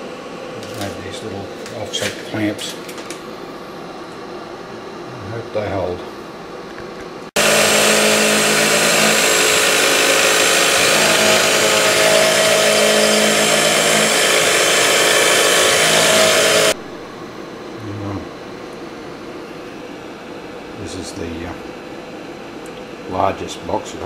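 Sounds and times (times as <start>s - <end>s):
milling machine cutting metal: 7.4s - 16.8s.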